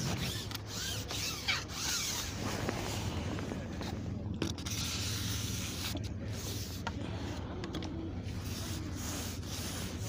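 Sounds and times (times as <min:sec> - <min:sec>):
fishing pole rubbing: 0:00.0 - 0:03.2, 0:04.4 - 0:06.9, 0:08.3 - 0:10.0
steady low rumble: 0:02.0 - 0:10.0.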